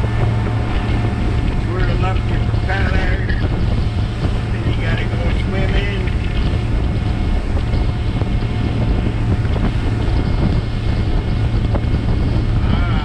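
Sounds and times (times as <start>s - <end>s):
boat engine drone: 0.0s - 13.0s
water churning in wake: 0.0s - 13.0s
wind on microphone: 0.0s - 13.0s.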